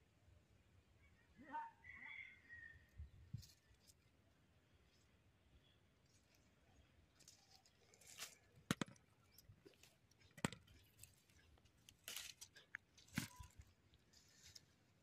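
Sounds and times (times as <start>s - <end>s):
plants rustling: 7.1s - 15.0s.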